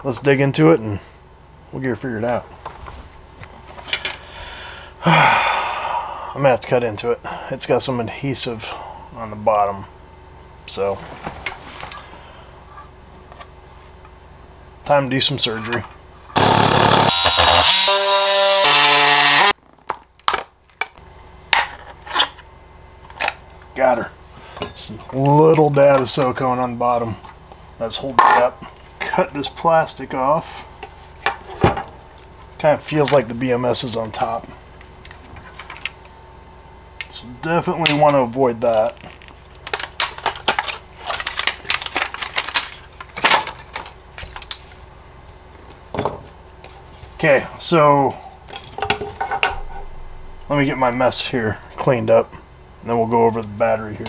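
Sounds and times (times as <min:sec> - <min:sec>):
oscillating multi-tool cutting plastic: 0:16.4 - 0:19.6
plastic shrink wrap crackling: 0:39.0 - 0:43.3.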